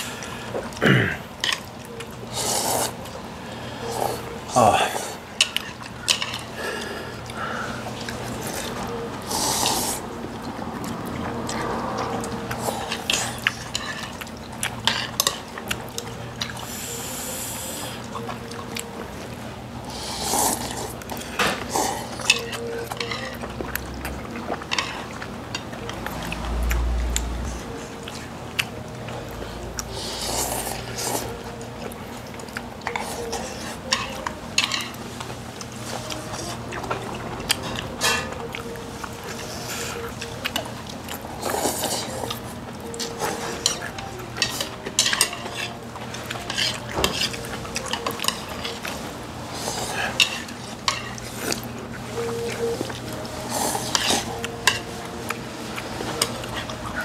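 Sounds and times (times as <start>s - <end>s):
noodle slurping: 2.3s - 3.1s, 8.0s - 10.1s
cutlery clicking against bowls: 32.4s - 35.0s, 43.0s - 49.0s.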